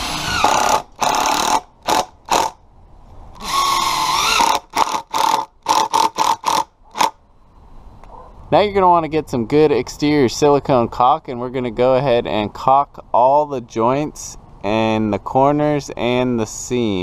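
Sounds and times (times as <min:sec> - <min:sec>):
cordless driver driving screw: 0:00.0 - 0:02.6, 0:03.4 - 0:07.2.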